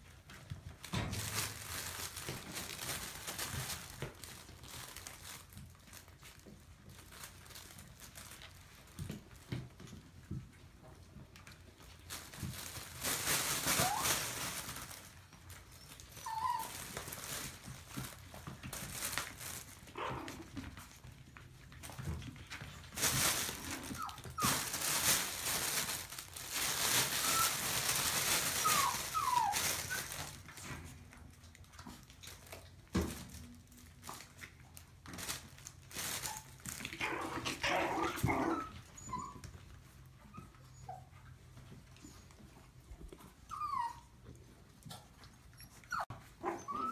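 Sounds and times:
puppies yipping and whimpering: 15.4s - 17.0s, 26.9s - 30.2s, 37.6s - 39.6s, 43.3s - 44.2s, 44.9s - 46.9s
nylon tunnel rustling: 22.8s - 30.6s.

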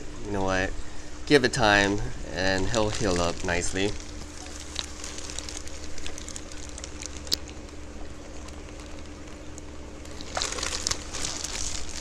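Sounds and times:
aquarium hum and hiss: 0.0s - 12.0s
plastic bag crackling: 2.4s - 12.0s.

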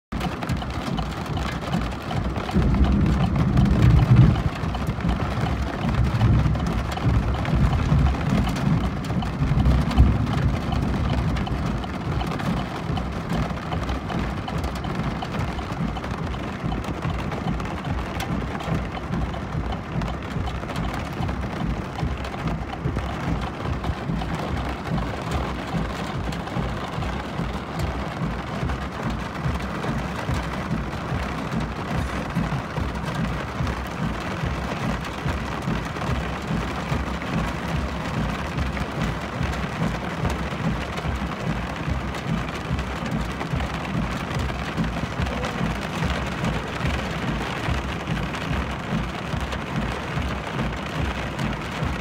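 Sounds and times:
car road noise on gravel: 0.1s - 52.0s.

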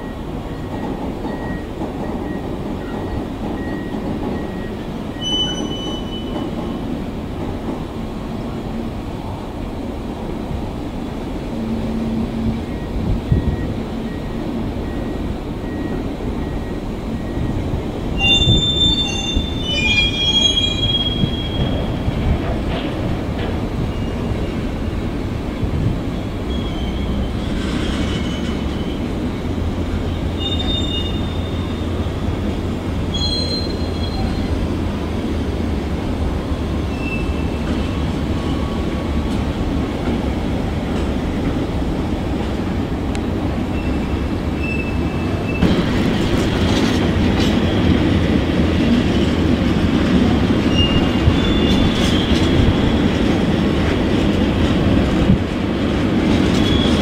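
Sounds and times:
wheel squeals: 3.0s - 6.5s, 18.2s - 21.9s, 26.5s - 29.1s, 30.3s - 32.1s, 33.1s - 34.6s, 36.9s - 38.8s, 43.7s - 45.8s, 50.7s - 53.1s, 56.5s - 57.0s.

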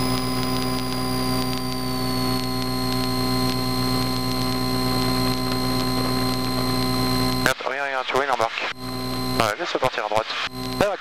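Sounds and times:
high engine whine: 0.0s - 7.6s, 8.7s - 9.5s, 10.5s - 10.9s.

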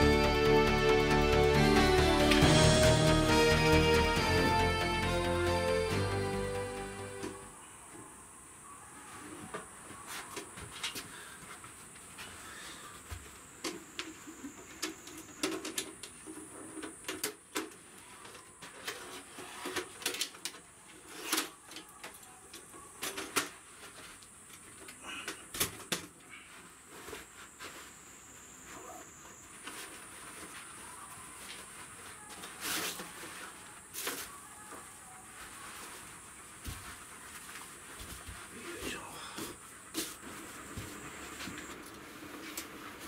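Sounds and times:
camping gear clicking and knocking: 14.8s - 17.9s.

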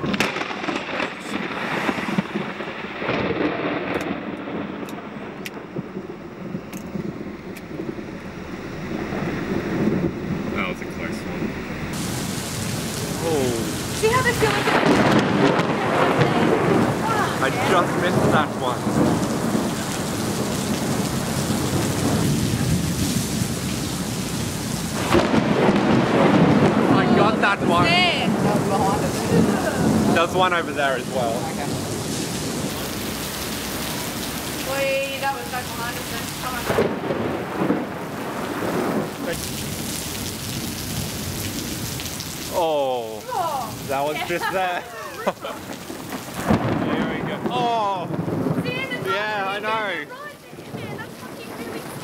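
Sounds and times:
wind noise: 0.0s - 42.3s
heavy rain: 0.0s - 52.0s
thunder rumble: 0.0s - 52.0s
sharp ticks: 3.9s - 12.0s.

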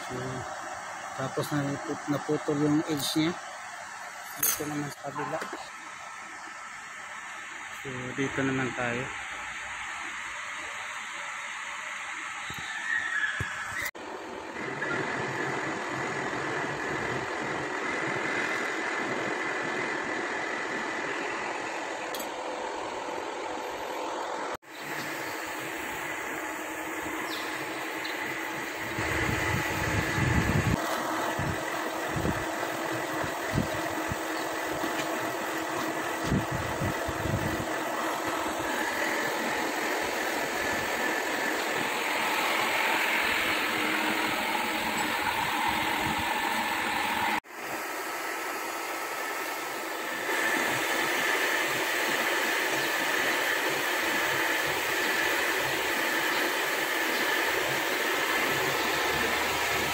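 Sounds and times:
metal lathe running: 14.1s - 47.4s, 49.7s - 59.9s.

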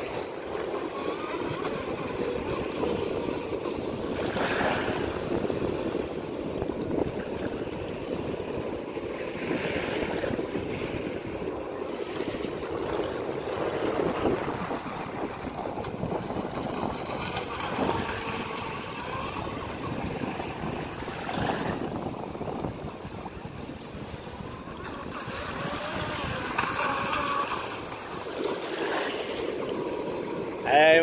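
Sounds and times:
wind and water noise: 0.0s - 31.0s
electric motor whining: 23.9s - 28.3s.

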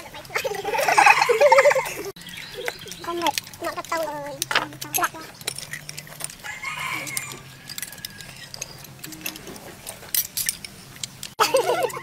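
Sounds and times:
spoons clicking against bowls: 2.6s - 11.4s
rooster crowing: 6.4s - 8.4s.

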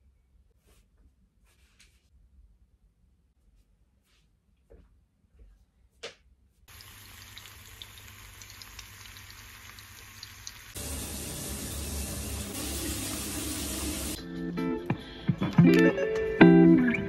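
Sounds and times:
food sizzling in a frying pan: 6.7s - 14.2s
water running from a tap: 6.7s - 14.2s.

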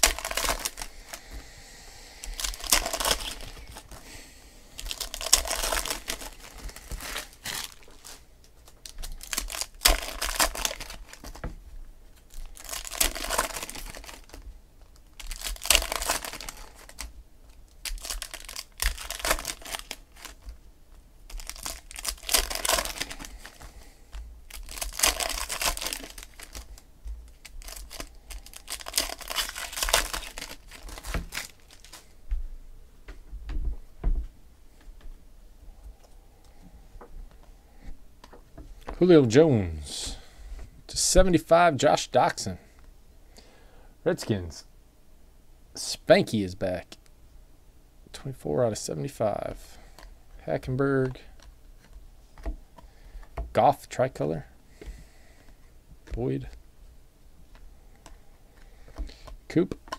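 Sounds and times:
foil wrappers tearing and crinkling: 0.0s - 1.3s, 2.2s - 4.1s, 4.7s - 11.5s, 12.1s - 17.1s, 17.7s - 20.6s, 21.3s - 32.1s.

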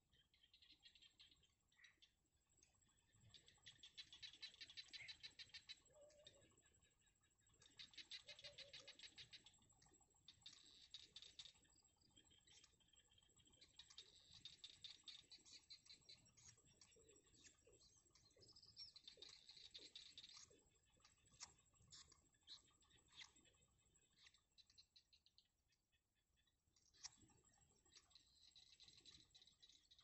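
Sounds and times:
chicks ticking chatter calls: 0.3s - 25.8s
short lower bird calls: 3.4s - 6.7s, 7.7s - 9.6s.

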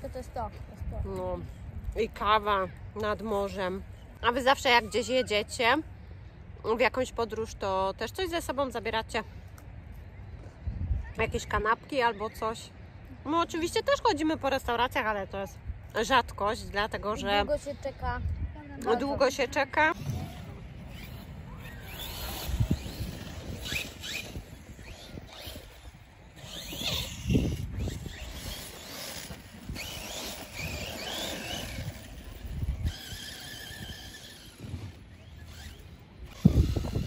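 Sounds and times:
wind rumbling on microphone: 0.0s - 4.2s, 9.8s - 12.0s, 15.5s - 37.0s
electric motor whining: 20.0s - 37.0s.

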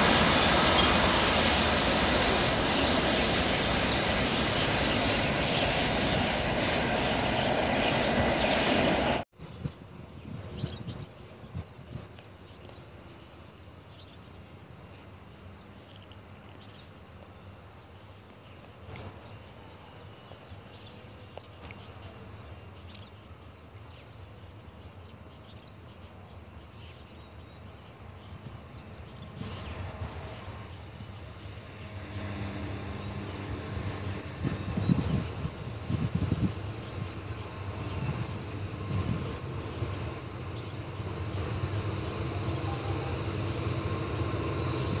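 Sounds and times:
train rumbling: 0.0s - 9.3s, 28.4s - 45.0s
insects calling high tone: 29.4s - 45.0s.

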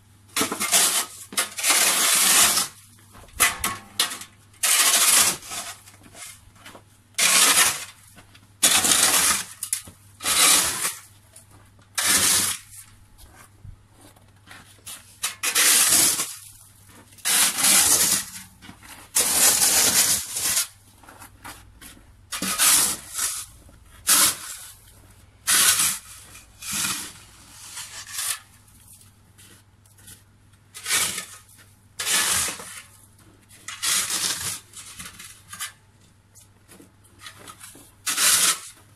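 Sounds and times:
snow shovel scraping snow: 0.4s - 2.8s, 4.6s - 6.4s, 7.2s - 8.0s, 8.6s - 11.1s, 12.0s - 12.9s, 14.8s - 16.5s, 17.2s - 20.8s, 22.4s - 24.8s, 25.5s - 28.6s, 30.8s - 33.0s, 33.7s - 35.5s, 37.7s - 38.9s.

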